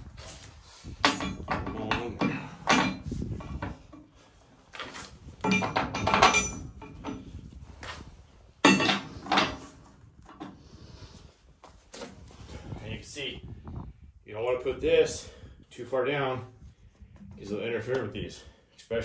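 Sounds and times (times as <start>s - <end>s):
metal clanks and clinks: 1.0s - 4.0s, 4.8s - 7.4s, 8.6s - 10.5s.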